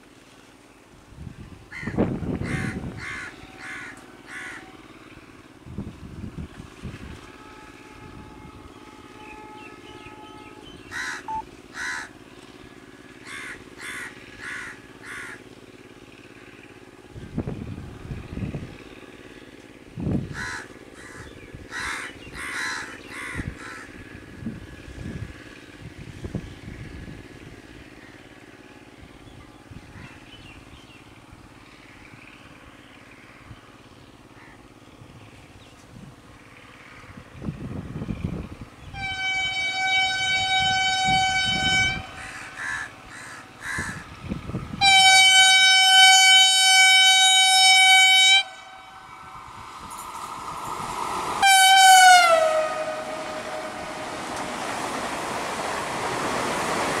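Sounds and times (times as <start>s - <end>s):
crows cawing: 1.7s - 4.7s, 10.9s - 12.2s, 13.2s - 15.4s, 20.3s - 24.0s, 42.2s - 44.2s.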